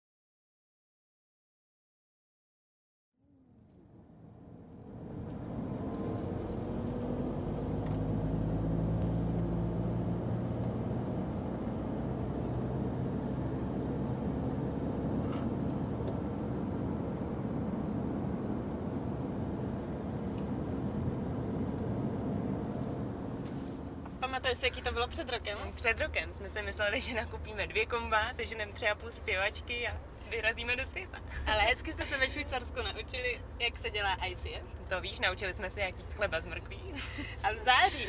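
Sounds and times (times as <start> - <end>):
car engine and tyre drone: 3.3 - 24.9.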